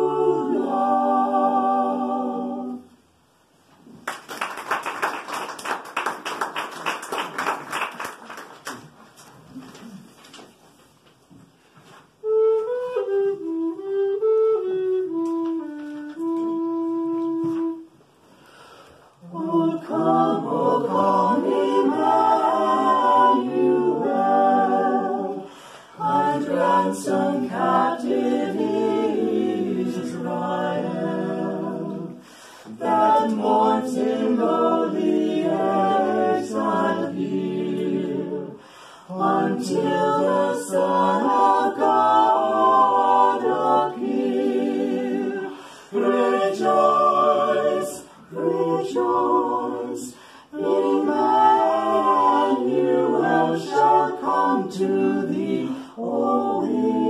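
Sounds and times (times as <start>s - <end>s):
mixed voices singing a cappella: 0.0s - 3.1s, 18.4s - 57.0s
wooden recorder melody: 11.8s - 18.2s.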